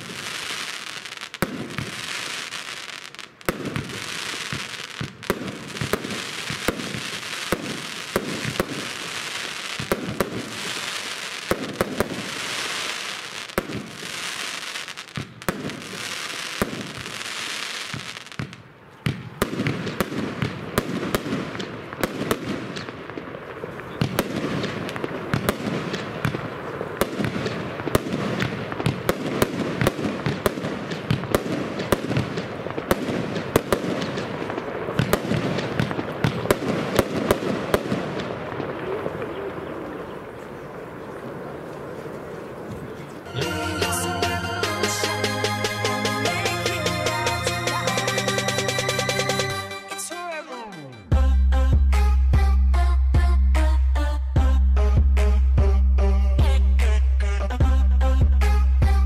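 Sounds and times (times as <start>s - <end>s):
firework hiss: 0.0s - 18.4s
firework cake shots: 0.0s - 50.6s
firework crackling: 0.0s - 50.6s.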